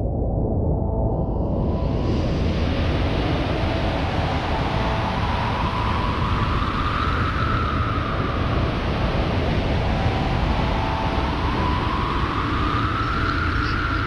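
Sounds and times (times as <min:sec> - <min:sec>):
dense wind rush: 0:00.0 - 0:14.0.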